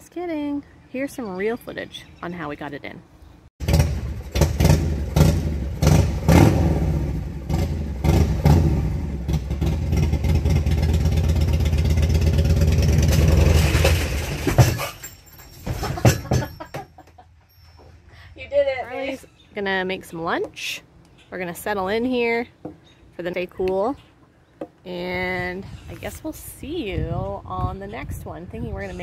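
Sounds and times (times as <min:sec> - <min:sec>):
motorcycle engine revving: 0:03.6 - 0:14.8.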